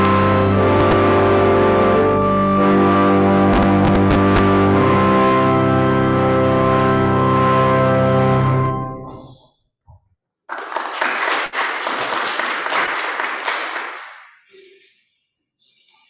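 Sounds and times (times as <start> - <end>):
people clapping: 0.0 - 1.3, 10.5 - 14.9
organ chord: 0.0 - 9.3.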